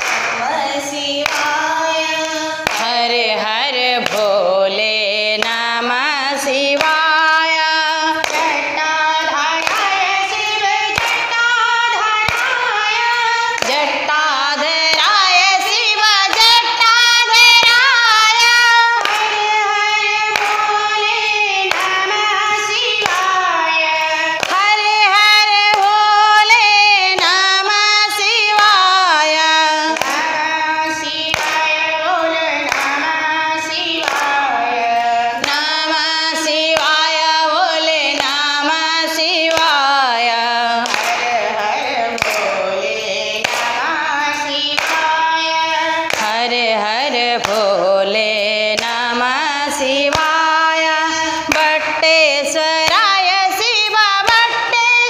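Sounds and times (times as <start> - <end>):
hand-clapping: 0.0 - 55.0
women singing in unison: 0.0 - 55.0.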